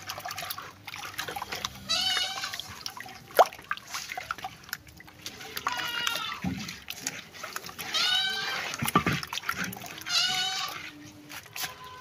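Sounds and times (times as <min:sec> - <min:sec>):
wet sloshing in clay pot: 0:00.0 - 0:12.0
animal calling: 0:09.9 - 0:12.0.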